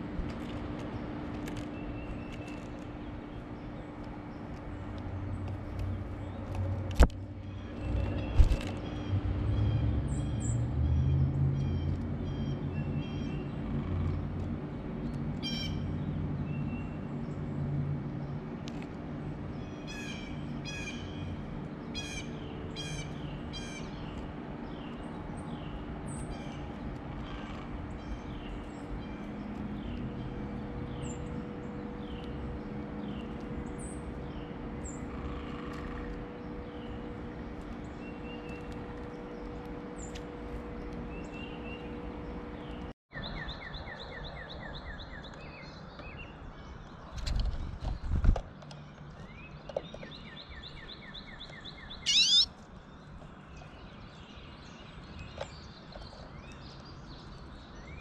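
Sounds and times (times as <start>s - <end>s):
songbirds chirping: 0.0s - 58.0s
bird trill: 51.3s - 52.5s.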